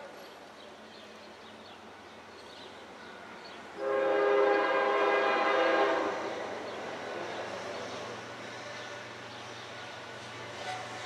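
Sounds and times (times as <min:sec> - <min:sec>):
locomotive air horn blast: 0:03.8 - 0:06.2.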